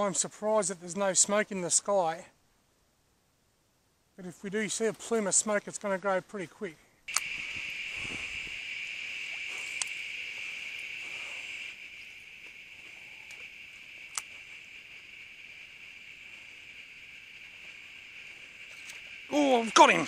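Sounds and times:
insects trilling: 4.2 - 20.0
sharp clicks: 7.1 - 8.6, 9.2 - 11.8, 12.4 - 14.5.

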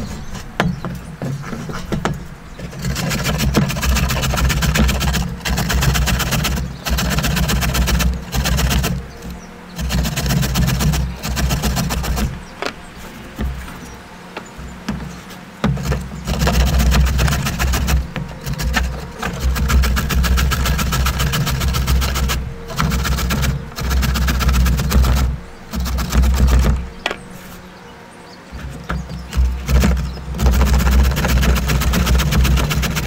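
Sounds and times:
carrot grated on metal grater: 2.7 - 12.4, 15.7 - 27.0, 28.9 - 33.0.

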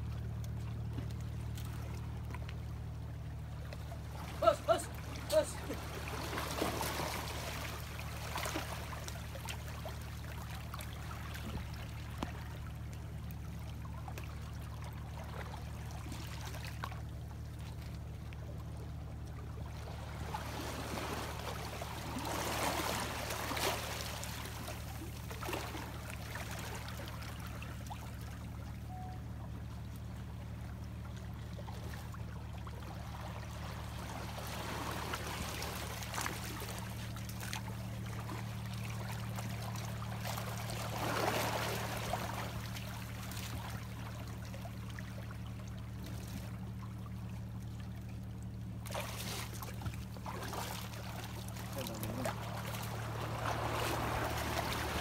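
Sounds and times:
steady low hum: 0.0 - 55.0
seawater washing over rocks: 4.1 - 12.4, 39.2 - 43.9, 48.9 - 55.0.

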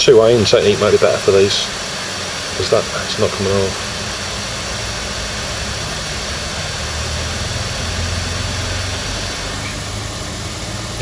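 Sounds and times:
hot air gun blowing: 0.0 - 11.0
low hum: 0.0 - 11.0.

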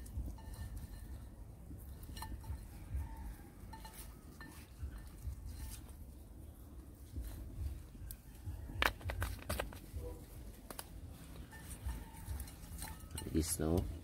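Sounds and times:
steady low rumble: 0.0 - 14.0
plastic shaker clicks and taps: 8.7 - 10.0.

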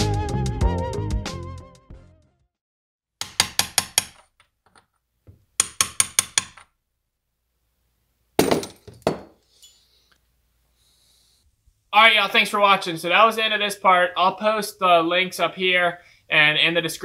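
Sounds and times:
hammer tapping on metal: 3.2 - 4.3, 5.6 - 6.6.

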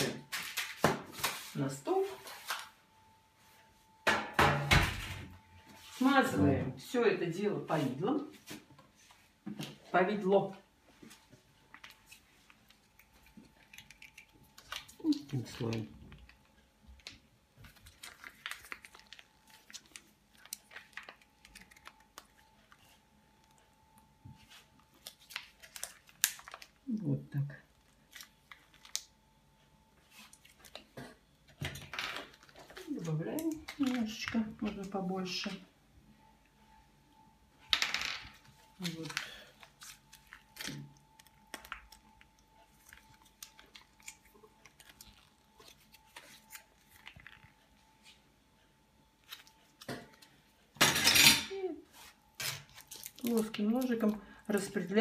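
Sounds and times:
plastic pouch crinkling: 11.7 - 23.6, 24.5 - 26.9, 27.7 - 29.2, 38.4 - 47.6, 51.9 - 54.9
faint steady tone: 35.2 - 44.8.

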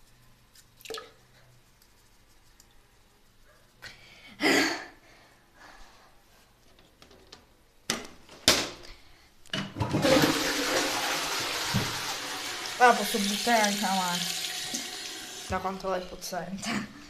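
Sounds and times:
running water: 9.9 - 16.8.

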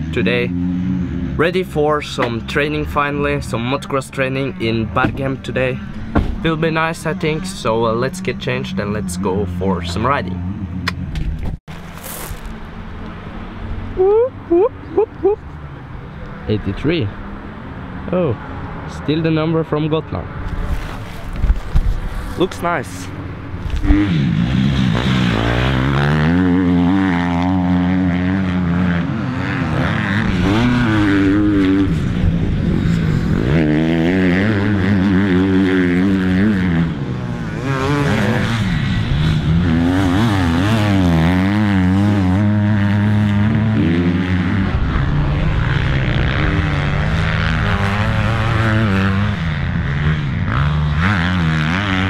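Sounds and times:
motocross bike engine revving: 0.0 - 11.1, 22.2 - 52.0.

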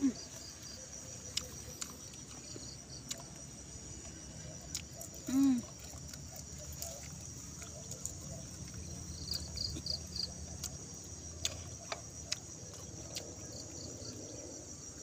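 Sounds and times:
insect chirps: 0.0 - 15.0.

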